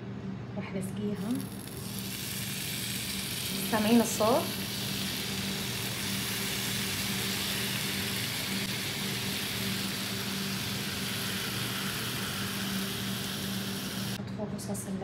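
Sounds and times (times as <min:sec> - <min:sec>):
tomato sauce sizzling on tray: 0:01.4 - 0:14.2.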